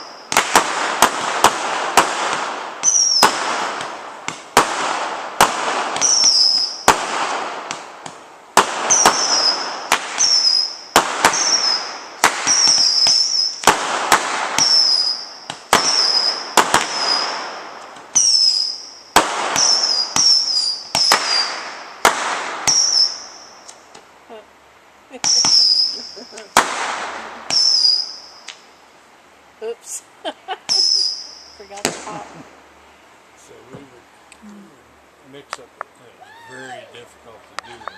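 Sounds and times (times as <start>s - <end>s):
fireworks launching pops: 0.0s - 24.1s, 25.2s - 28.7s, 30.6s - 32.5s
firework hiss: 0.0s - 24.4s, 25.1s - 32.7s
firework whistle: 2.8s - 3.5s, 6.0s - 7.0s, 8.9s - 13.7s, 14.6s - 17.5s, 18.1s - 21.6s, 22.6s - 23.7s, 25.2s - 26.4s, 27.5s - 28.7s, 30.7s - 31.8s.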